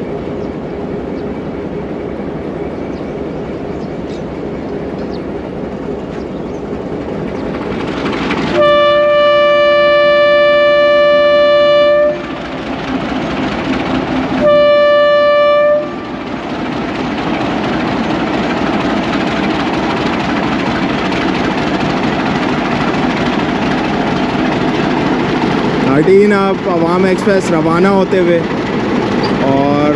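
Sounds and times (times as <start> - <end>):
locomotive horn blasts: 8.5 - 12.4, 14.4 - 16.2
diesel engine running: 11.8 - 29.9.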